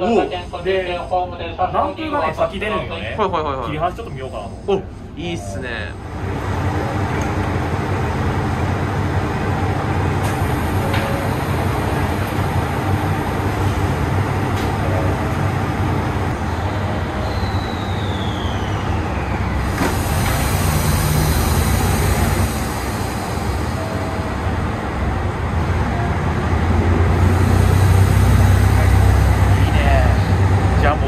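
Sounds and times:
railcar engine rumble: 0.0 - 31.0
hiss: 19.7 - 24.0.

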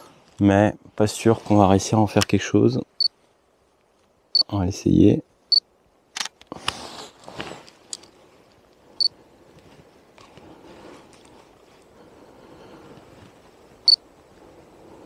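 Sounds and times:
rustling handling noise: 6.3 - 12.0.

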